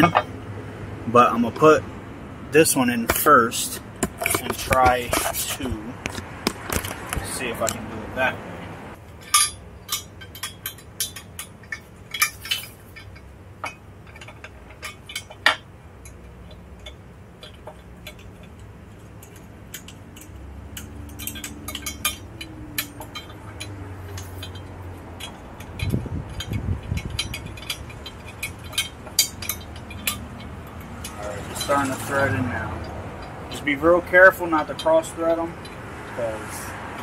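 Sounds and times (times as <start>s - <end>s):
metallic clinks of bolts: 9.2s - 33.5s.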